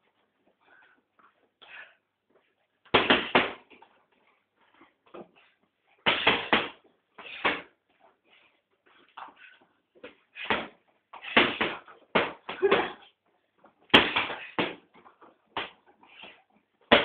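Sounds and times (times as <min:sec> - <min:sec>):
gloves punching heavy bag: 0:02.9 - 0:03.7, 0:06.0 - 0:07.8, 0:10.1 - 0:13.0, 0:13.9 - 0:14.9.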